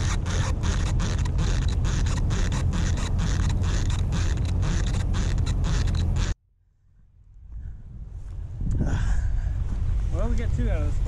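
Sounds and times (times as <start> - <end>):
fishing reel squeaking: 0.0 - 6.4.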